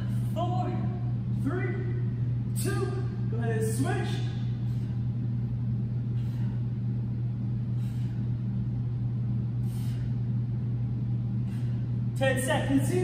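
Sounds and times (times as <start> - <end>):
steady low hum: 0.0 - 13.0
short sharp breaths: 6.0 - 6.8, 7.7 - 8.4, 9.6 - 10.3, 11.4 - 12.0.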